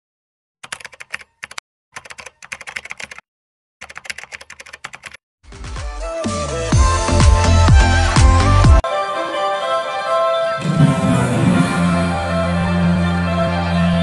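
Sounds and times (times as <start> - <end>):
keyboard typing: 0.6 - 3.2, 3.8 - 5.2
music: 5.4 - 14.0.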